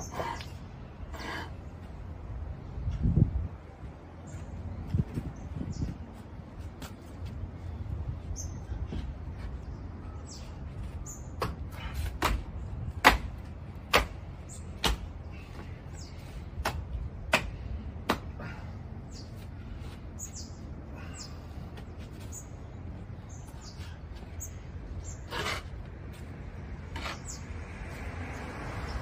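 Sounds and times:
small birds chirping: 0:07.6 - 0:12.8, 0:14.3 - 0:16.8, 0:18.9 - 0:25.7, 0:26.9 - 0:27.6.

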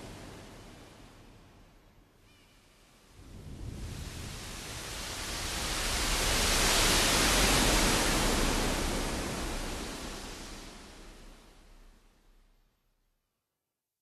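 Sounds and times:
smooth rush of noise: 0:03.2 - 0:12.2.

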